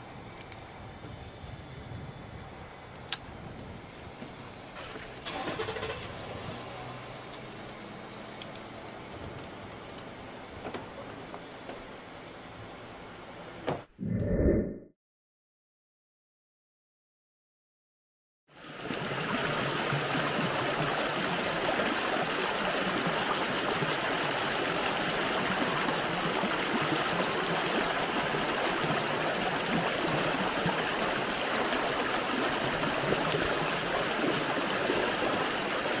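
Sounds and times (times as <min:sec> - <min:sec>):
stream babbling: 0:18.6 - 0:36.0.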